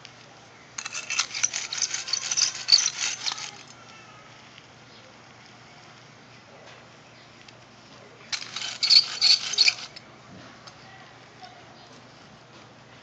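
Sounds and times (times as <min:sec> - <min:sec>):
rapid crackling rattle: 0:00.8 - 0:03.7, 0:08.3 - 0:10.0.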